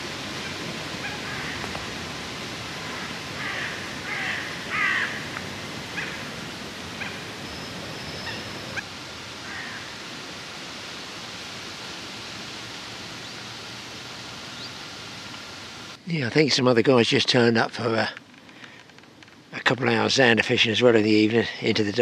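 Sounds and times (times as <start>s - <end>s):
steady outdoor hiss: 0.0s - 22.0s
harsh bird calls: 2.7s - 8.8s.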